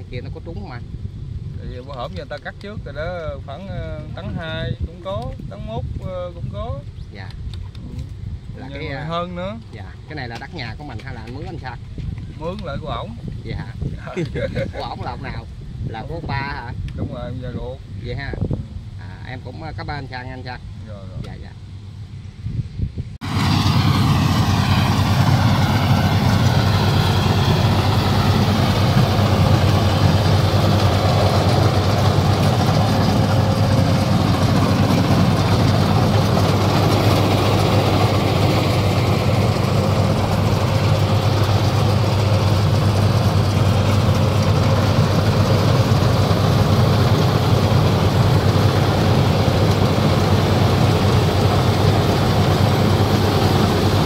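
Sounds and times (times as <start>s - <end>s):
harvester engine drone: 23.2s - 54.0s
cutting machinery clatter: 23.9s - 54.0s.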